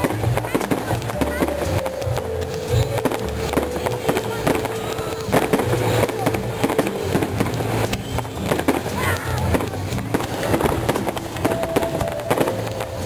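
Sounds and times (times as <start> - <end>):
fireworks cracking and banging: 0.0 - 13.0.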